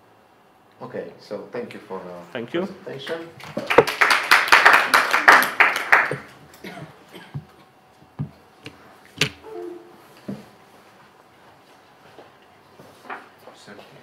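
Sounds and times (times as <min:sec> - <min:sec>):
people clapping: 0:03.0 - 0:06.4.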